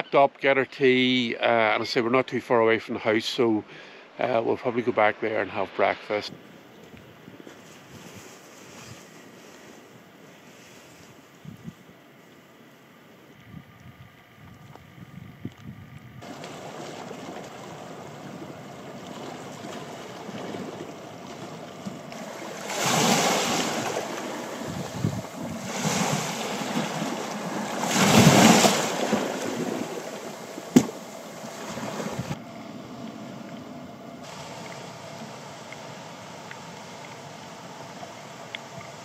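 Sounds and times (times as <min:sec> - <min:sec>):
sea surf and wind: 0:16.2 - 0:39.0
waves washing in: 0:16.2 - 0:39.0.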